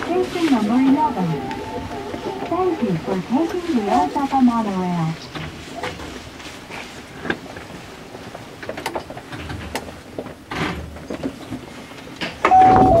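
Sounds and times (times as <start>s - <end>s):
clicks and knocks in train cab: 8.6s - 13.0s.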